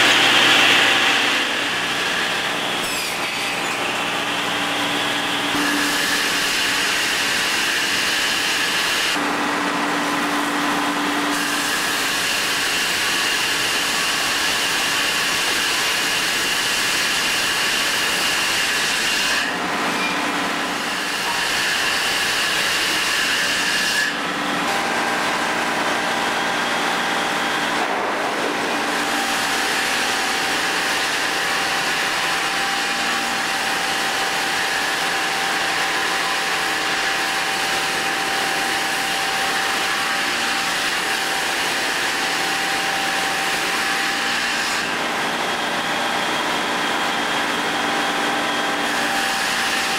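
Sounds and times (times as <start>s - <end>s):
high saw whine: 0.0s - 49.9s
sawmill machinery running: 0.0s - 49.9s.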